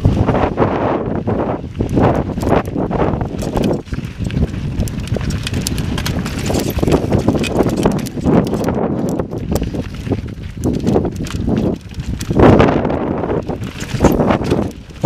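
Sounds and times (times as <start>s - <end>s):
wind buffeting microphone: 0.0s - 15.0s
mountain bike rattling over rock: 1.2s - 15.0s.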